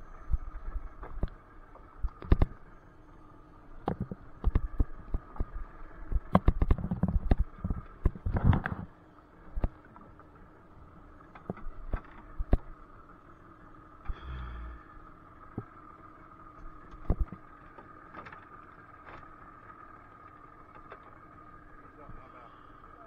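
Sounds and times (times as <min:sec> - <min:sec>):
faint steady hum: 0:00.0 - 0:23.0
knocks and thumps on a boat: 0:03.8 - 0:08.9, 0:11.3 - 0:12.7, 0:16.9 - 0:19.4.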